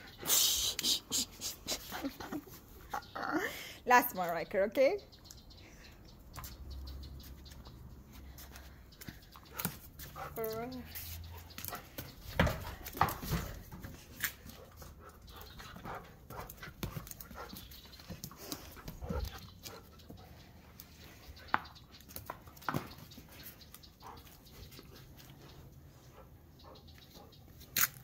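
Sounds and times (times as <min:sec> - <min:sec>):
dog panting: 0:08.4 - 0:21.5, 0:23.3 - 0:27.4.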